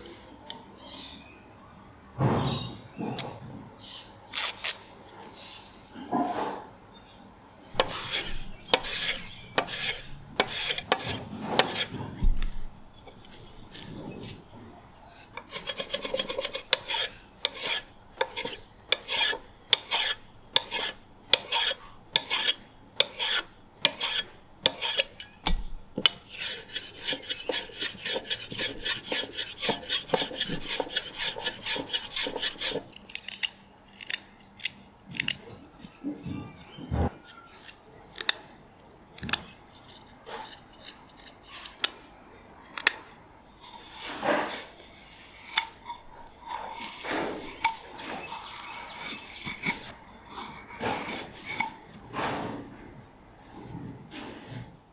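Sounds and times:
hand plane scraping wood: 7.8 - 12.3, 15.4 - 32.9, 43.6 - 52.6
knife cutting wood: 7.8 - 14.4, 15.4 - 35.4, 43.6 - 52.6.

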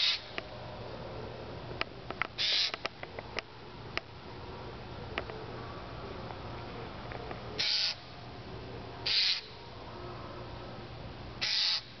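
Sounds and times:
jay harsh calls: 0.0 - 0.3, 2.4 - 2.8, 7.6 - 8.1, 9.0 - 9.6, 11.4 - 11.9.

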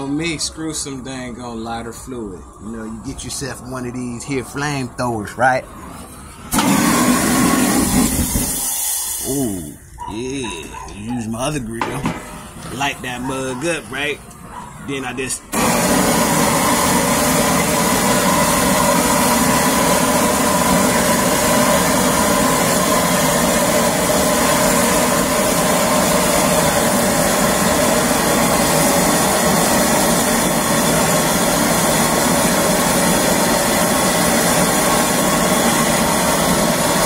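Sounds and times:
propane torch flame rushing: 5.7 - 9.7, 15.0 - 37.0.

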